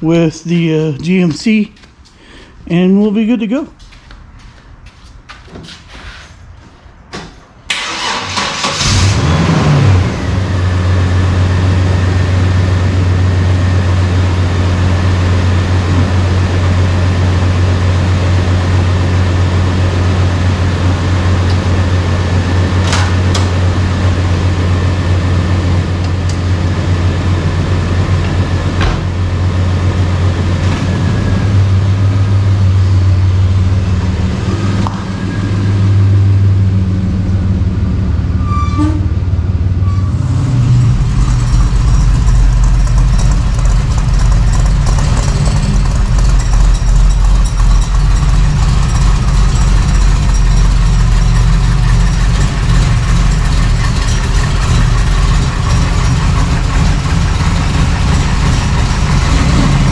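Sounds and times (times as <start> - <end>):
pickup engine cranking and idling: 7.7 - 30.7, 39.5 - 59.9.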